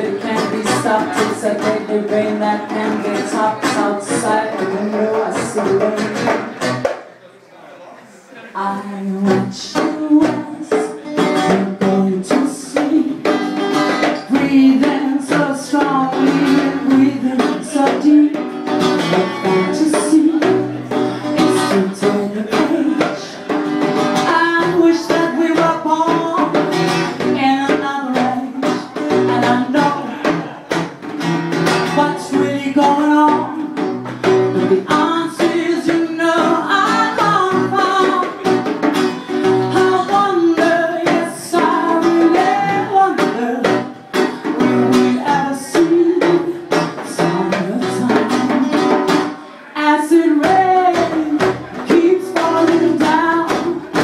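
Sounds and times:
woman singing: 0:00.0 - 0:06.6, 0:08.6 - 0:30.4, 0:31.7 - 0:54.0
strummed acoustic guitar: 0:00.0 - 0:06.9, 0:08.6 - 0:54.0
hand-played djembe drums: 0:00.0 - 0:07.0, 0:09.3 - 0:49.4, 0:50.1 - 0:54.0.

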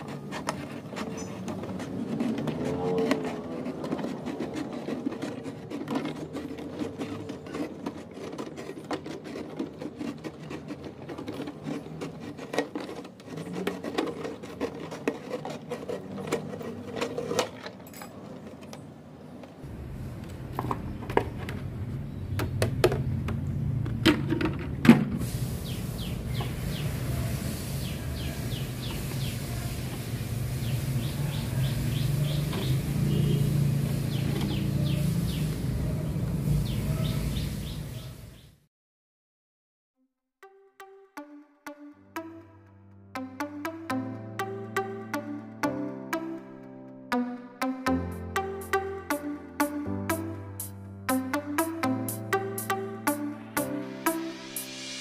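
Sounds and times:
knife cutting plastic bottle: 0:00.0 - 0:17.6.

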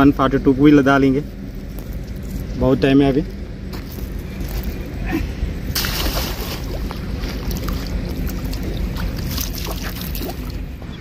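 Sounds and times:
wind rumbling on microphone: 0:00.9 - 0:11.0
water hissing and splashing: 0:05.8 - 0:10.6.

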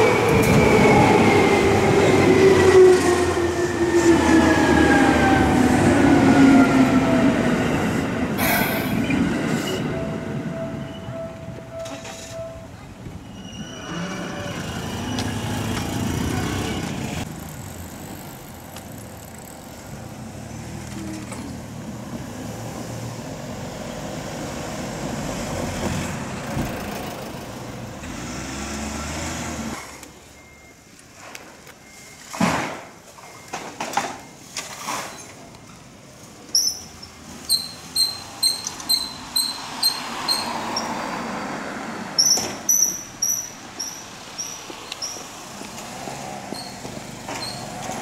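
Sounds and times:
cars driving past: 0:14.2 - 0:30.0, 0:37.2 - 0:42.7, 0:43.6 - 0:48.0.

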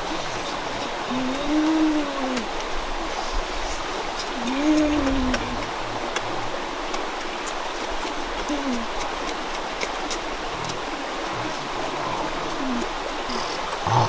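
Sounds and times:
stream flowing: 0:00.0 - 0:14.0.

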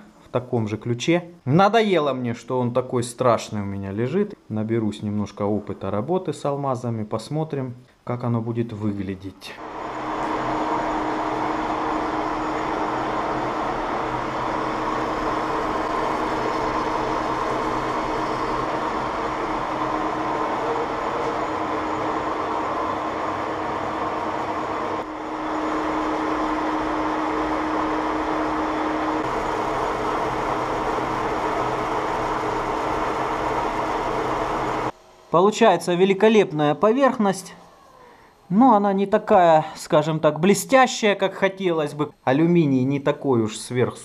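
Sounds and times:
lathe cutting metal: 0:09.6 - 0:35.3
metal lathe humming: 0:09.6 - 0:35.4.

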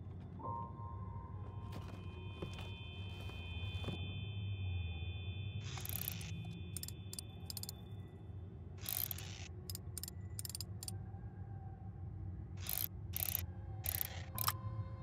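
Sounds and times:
wind-up key ratchet clicks: 0:05.8 - 0:07.7, 0:08.8 - 0:10.9, 0:12.6 - 0:14.6.

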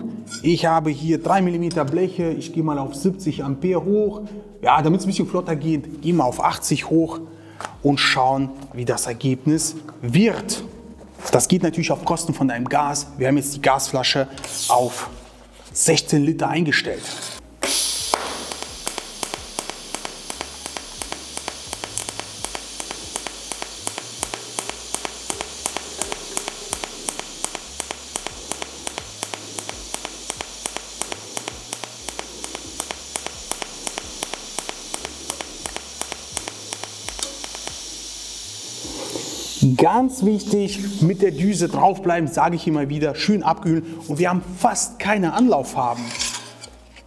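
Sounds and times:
welding arc hissing and ticking: 0:13.8 - 0:15.2, 0:17.4 - 0:42.8.

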